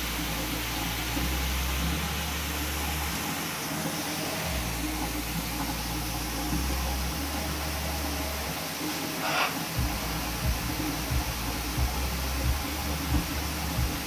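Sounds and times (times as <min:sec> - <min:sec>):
shower water running: 0:00.0 - 0:14.0
low rumble: 0:09.8 - 0:14.0.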